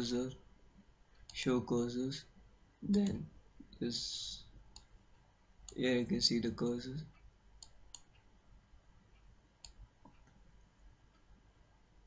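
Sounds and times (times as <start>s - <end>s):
computer mouse clicks: 4.7s - 5.0s, 7.1s - 8.3s, 9.1s - 10.4s.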